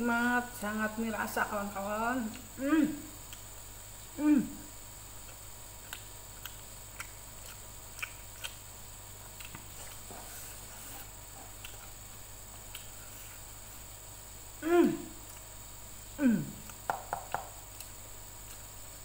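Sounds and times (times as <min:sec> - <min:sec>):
steady low hum: 0:00.0 - 0:19.0
chewing smacks and clicks: 0:05.2 - 0:08.6, 0:09.3 - 0:10.1, 0:11.4 - 0:12.0, 0:12.6 - 0:13.0.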